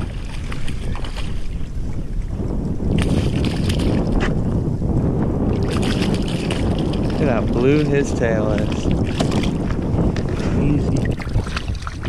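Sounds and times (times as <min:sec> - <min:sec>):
fish splashing in water: 0:00.0 - 0:01.8, 0:02.9 - 0:04.1, 0:05.5 - 0:08.0, 0:08.6 - 0:10.4, 0:11.1 - 0:12.0
wind buffeting microphone: 0:00.0 - 0:12.0.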